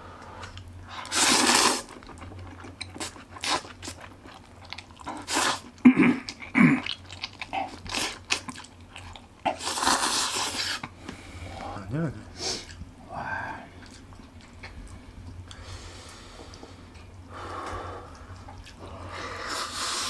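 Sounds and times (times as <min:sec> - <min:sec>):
person slurping noodles: 0:00.9 - 0:02.0, 0:09.5 - 0:10.8, 0:19.2 - 0:20.0
wet chewing smacks and clicks: 0:01.8 - 0:09.6, 0:13.8 - 0:15.7, 0:16.4 - 0:18.9.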